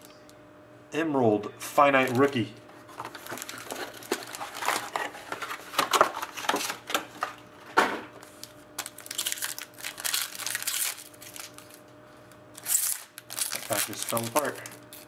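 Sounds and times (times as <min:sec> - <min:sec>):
foil packs crinkling: 0:02.0 - 0:07.3, 0:08.2 - 0:11.9, 0:12.6 - 0:15.0
foil wrapper tearing: 0:03.0 - 0:05.4, 0:08.2 - 0:11.8, 0:12.6 - 0:15.0.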